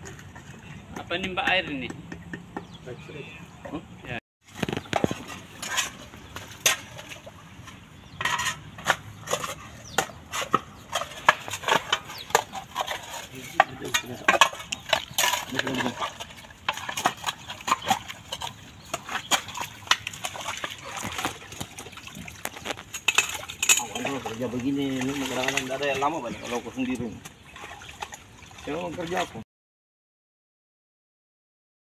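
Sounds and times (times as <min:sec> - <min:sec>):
digging tools scraping wet soil: 0:04.4 - 0:29.4.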